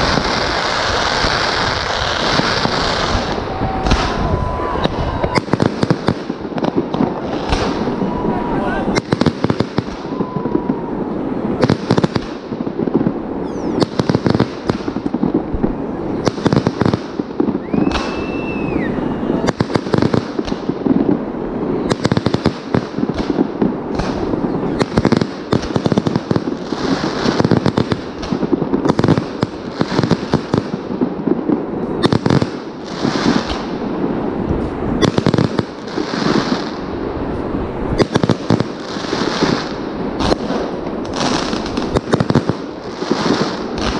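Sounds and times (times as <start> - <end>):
firework whistle: 0.0 - 12.3, 13.3 - 20.7, 21.5 - 23.4, 24.0 - 30.6
fireworks bursting and crackling: 0.0 - 43.9.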